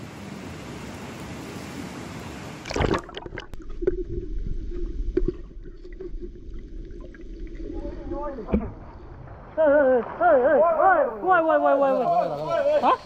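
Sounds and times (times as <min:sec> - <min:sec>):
water gurgling and splashing: 0:02.6 - 0:11.4.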